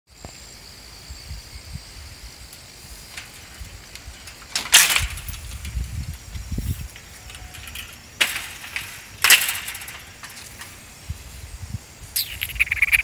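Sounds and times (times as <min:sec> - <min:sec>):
loud rustling hiss: 0:00.1 - 0:13.0
low rumbling handling thumps: 0:03.0 - 0:11.8.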